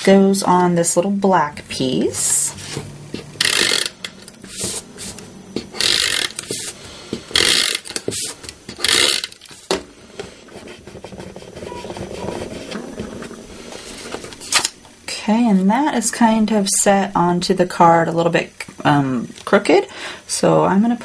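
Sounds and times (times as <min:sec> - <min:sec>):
card rasping strokes: 0:02.3 - 0:14.7
paper rustling: 0:09.5 - 0:14.7.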